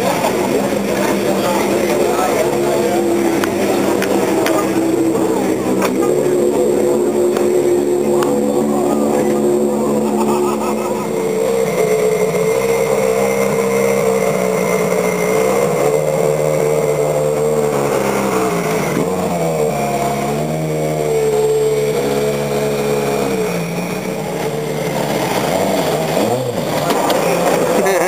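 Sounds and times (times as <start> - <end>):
race car engine running: 0.0 - 28.0.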